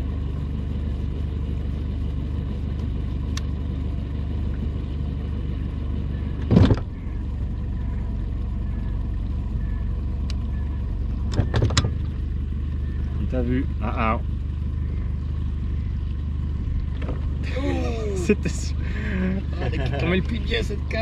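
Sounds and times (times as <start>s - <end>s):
boat motor humming: 0.0s - 21.0s.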